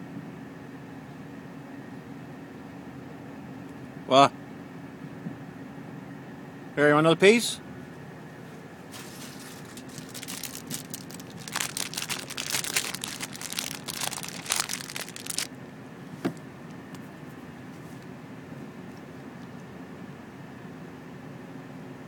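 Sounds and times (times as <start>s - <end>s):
plastic bag crinkling: 8.9s - 15.5s.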